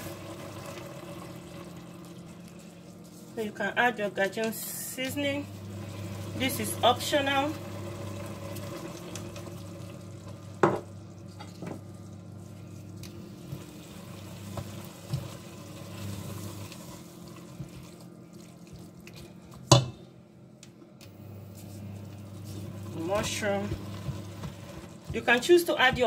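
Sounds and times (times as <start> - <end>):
food sizzling in a pot: 0.0 - 2.4, 5.4 - 11.8, 13.2 - 17.9
steady low hum: 0.0 - 26.0.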